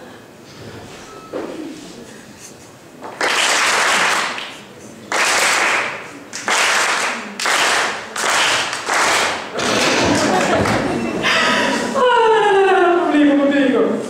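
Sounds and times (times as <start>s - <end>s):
audience applauding: 3.1s - 11.1s.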